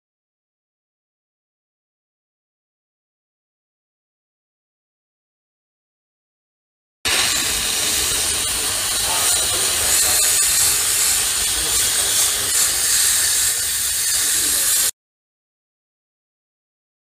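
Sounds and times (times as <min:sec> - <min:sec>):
high-pressure steam hissing: 0:07.1 - 0:15.0.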